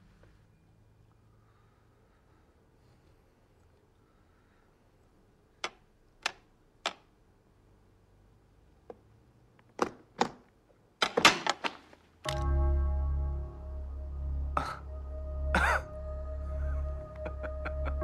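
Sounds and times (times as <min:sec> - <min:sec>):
music: 0:12.3 - 0:18.0.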